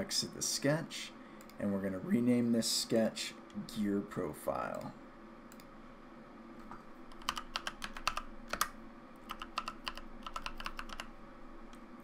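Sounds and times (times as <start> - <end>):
computer keyboard typing: 7.1 - 11.1.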